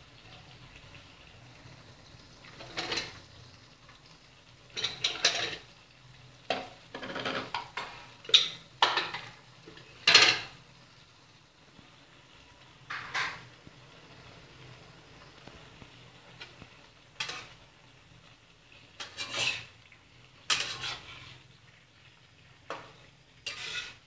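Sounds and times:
metal spatula scraping a wok: 2.5s - 3.2s, 4.8s - 5.7s, 7.0s - 10.6s, 16.3s - 17.7s, 18.8s - 21.4s, 22.7s - 24.0s.

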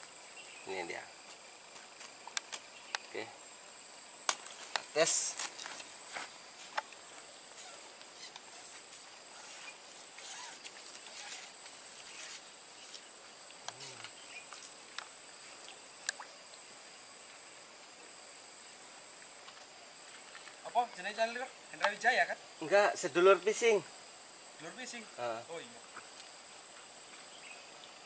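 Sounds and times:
high-pitched insect chorus: 0.0s - 28.0s
faint ticks: 2.0s - 3.2s, 12.8s - 16.6s.

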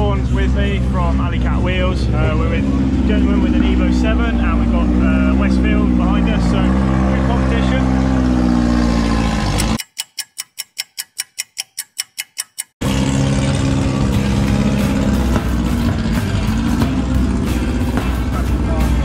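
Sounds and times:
sharp ticks: 9.6s - 12.8s
sustained low tone: 12.8s - 19.0s
background music with steady beat: 13.8s - 19.0s.

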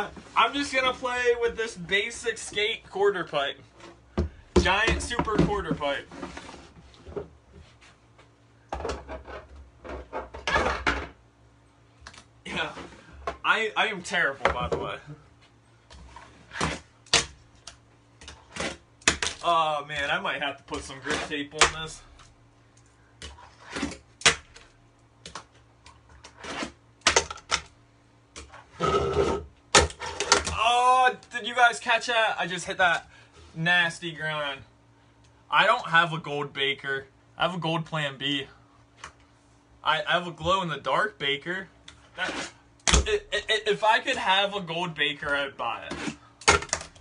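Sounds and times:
fingerboard grind scrape: 26.4s - 26.8s, 42.2s - 42.6s.

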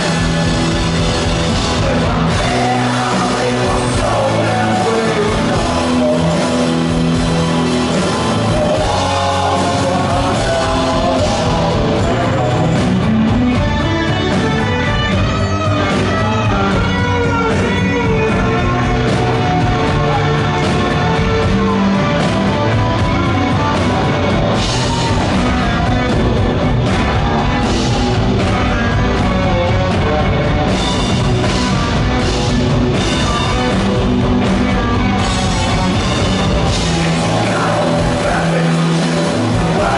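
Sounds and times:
rock band playing live: 0.0s - 39.9s
man singing: 1.5s - 13.1s, 36.8s - 39.9s.

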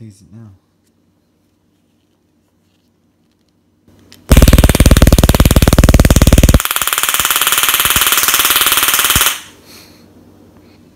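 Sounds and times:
stun gun electric crackle: 4.3s - 9.5s.

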